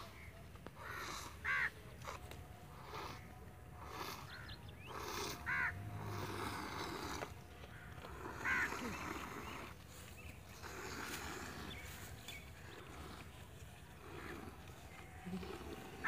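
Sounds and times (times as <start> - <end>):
bird cawing: 0.8 - 1.7, 5.5 - 5.8, 7.7 - 9.0.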